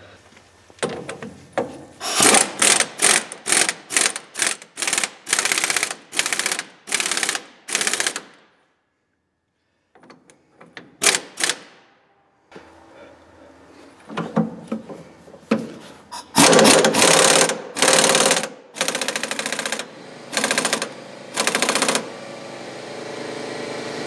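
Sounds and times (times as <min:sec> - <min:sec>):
impact wrench hammering: 0:00.8 - 0:08.4, 0:10.1 - 0:11.8, 0:16.4 - 0:22.1.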